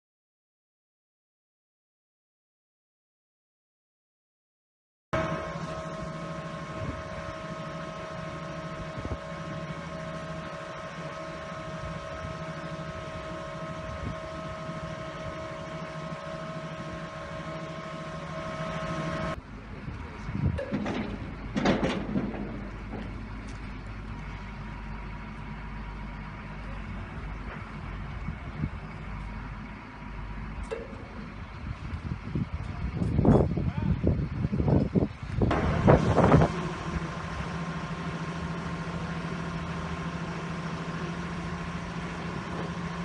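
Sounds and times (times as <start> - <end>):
short loud machine sounds: 5.2 - 19.4
low machine hum: 5.2 - 43.0
piling rig engine hum: 5.2 - 43.0.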